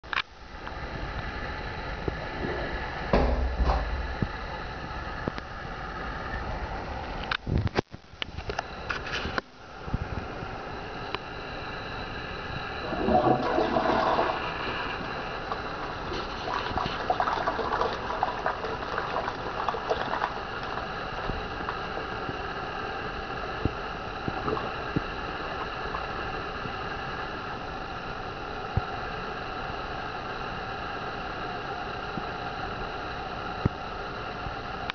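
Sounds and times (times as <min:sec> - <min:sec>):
running water hiss: 0:12.6 - 0:27.4
water gurgling down drain: 0:12.7 - 0:22.6, 0:23.6 - 0:26.8
toilet flushing: 0:12.8 - 0:22.3, 0:24.2 - 0:26.2.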